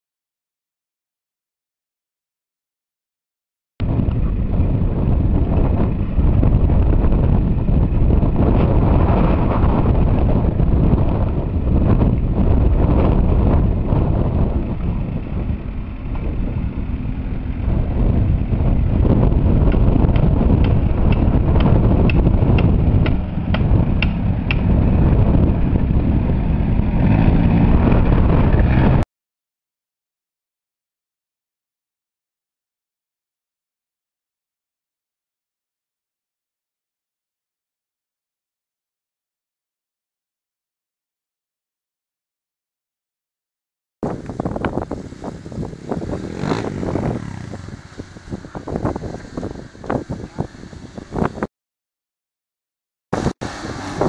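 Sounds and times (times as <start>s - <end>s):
vehicle engine running: 3.8s - 29.0s, 44.1s - 51.4s
wind rumble on microphone: 3.8s - 29.0s, 44.0s - 51.5s, 53.2s - 54.0s.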